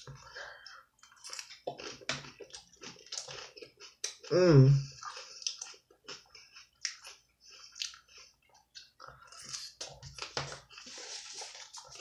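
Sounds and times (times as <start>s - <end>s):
chewing crunchy salad: 1.0s - 12.0s.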